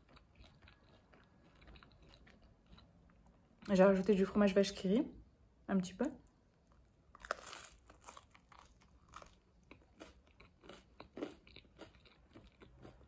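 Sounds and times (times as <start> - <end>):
person chewing crunchy pizza: 0.0 - 3.4, 7.1 - 13.0.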